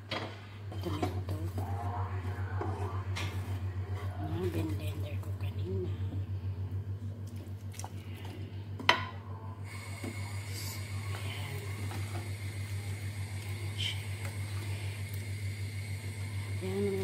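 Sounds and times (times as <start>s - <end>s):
low pulsing hum: 0.0s - 17.0s
faint high whine: 9.2s - 17.0s.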